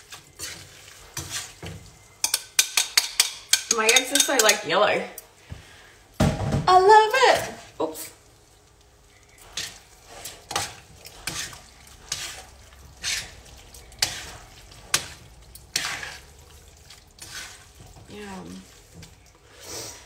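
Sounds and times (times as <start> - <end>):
metal tongs clinking in a frying pan: 2.2 - 4.9.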